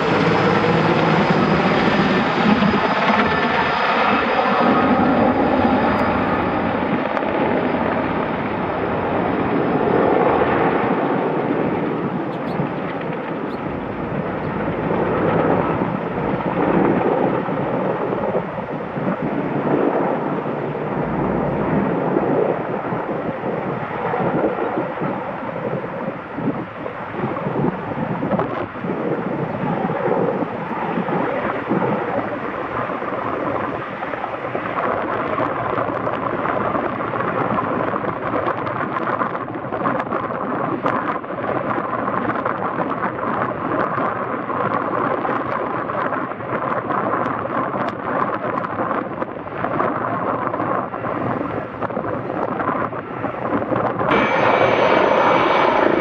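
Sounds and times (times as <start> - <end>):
distant helicopter drone: 0.0 - 56.0.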